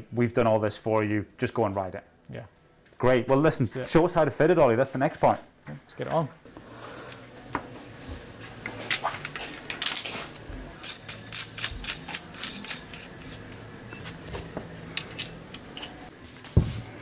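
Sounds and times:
metal parts clicking and clinking: 8.9s - 10.1s, 10.8s - 13.4s, 14.9s - 16.0s.

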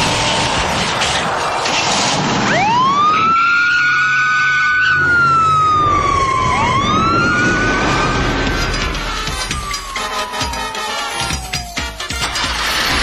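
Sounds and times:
moving car noise: 0.0s - 13.0s
police siren wailing: 2.4s - 12.3s.

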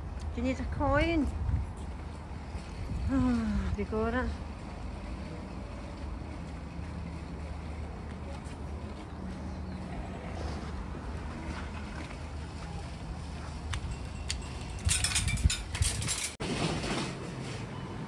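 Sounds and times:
wind rumbling on microphone: 0.0s - 3.8s, 11.6s - 16.4s
metal trolley rattling clatter: 14.4s - 17.7s.

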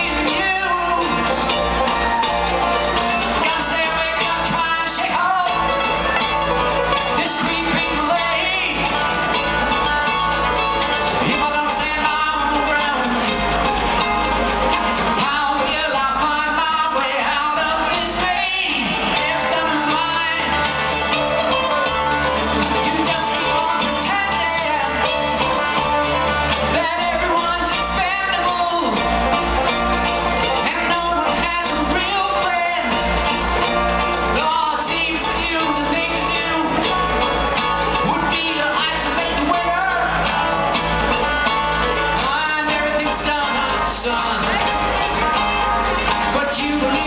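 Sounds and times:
bluegrass band playing live: 0.0s - 47.0s
person singing: 0.0s - 47.0s
upright bass: 0.0s - 47.0s.

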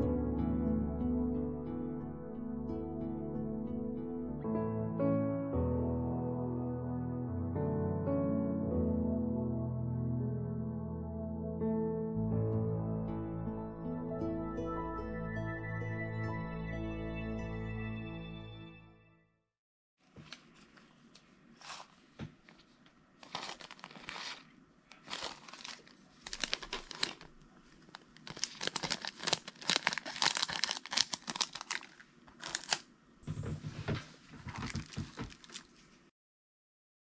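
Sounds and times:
plastic film crinkling: 23.2s - 32.9s, 34.5s - 35.8s.

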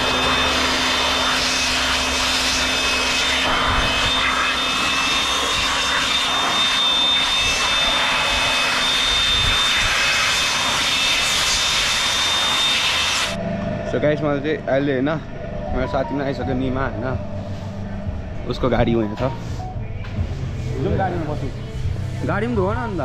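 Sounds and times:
electric air blower whining: 0.0s - 19.6s.

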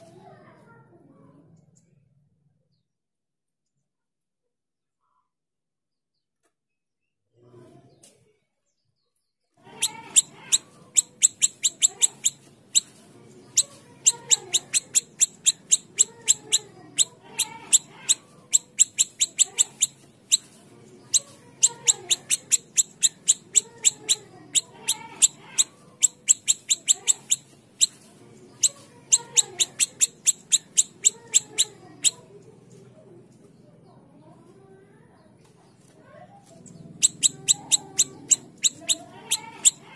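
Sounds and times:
songbird chipping notes: 9.8s - 12.9s, 13.5s - 20.5s, 21.1s - 28.0s, 28.6s - 32.2s, 37.0s - 39.9s.

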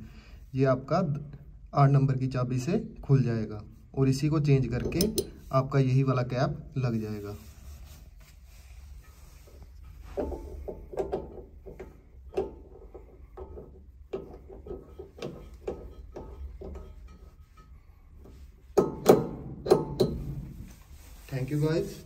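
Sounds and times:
waste plug clicking and knocking: 10.2s - 17.1s, 18.8s - 20.2s.

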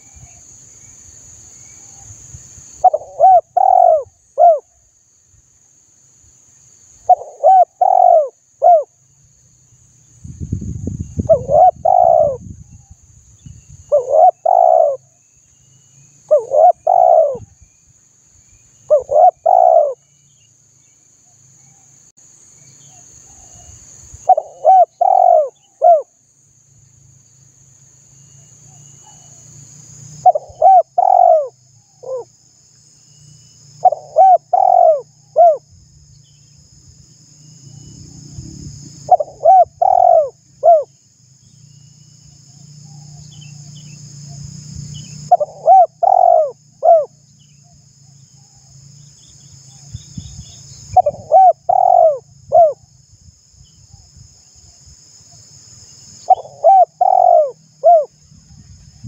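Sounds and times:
dove cooing: 2.8s - 4.7s, 7.1s - 8.9s, 11.3s - 12.4s, 13.9s - 15.0s, 16.3s - 17.5s, 18.9s - 20.0s, 24.3s - 26.1s, 30.2s - 32.3s, 33.8s - 35.6s, 39.1s - 40.9s, 45.3s - 47.2s, 51.0s - 52.8s, 56.3s - 58.1s.

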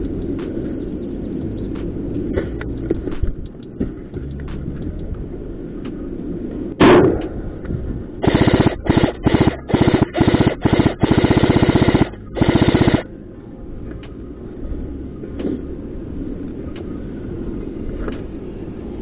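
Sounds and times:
airsoft rifle bursts: 8.2s - 13.0s.

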